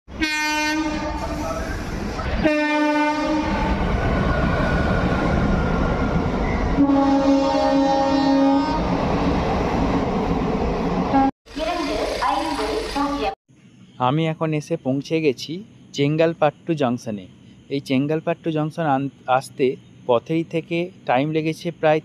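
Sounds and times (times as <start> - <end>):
train horn: 0.1 - 3.8, 6.8 - 8.9
moving train rumble: 0.1 - 22.0.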